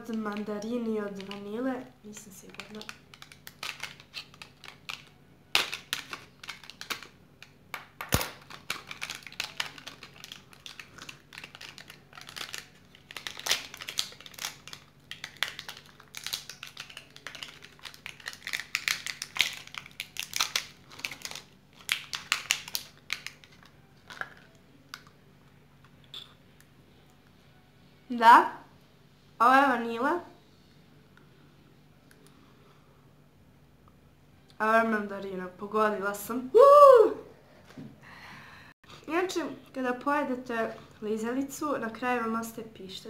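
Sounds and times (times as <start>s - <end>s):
plastic wrapper crinkling: 0.0s - 25.1s.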